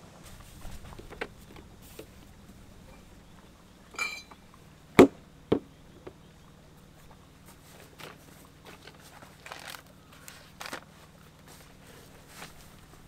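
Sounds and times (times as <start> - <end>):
ringing clink: 3.9 - 4.4
sharp knocks: 5.0 - 5.7.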